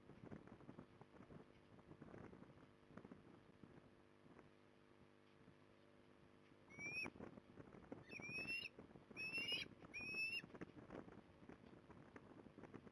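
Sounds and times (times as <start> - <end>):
ospreys calling: 8.1 - 10.4.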